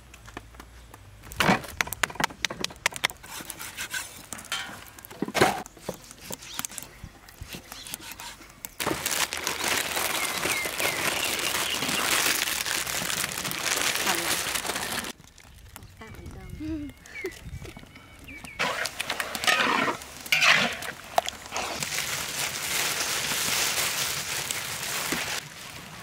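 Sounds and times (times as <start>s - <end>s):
plastic wrappers tearing and crinkling: 8.8s - 16.0s, 18.6s - 26.0s.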